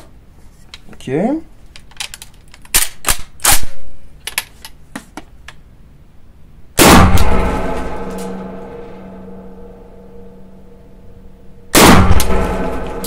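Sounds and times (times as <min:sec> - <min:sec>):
shotgun shot ringing: 0:06.8 - 0:10.3, 0:11.7 - 0:13.0.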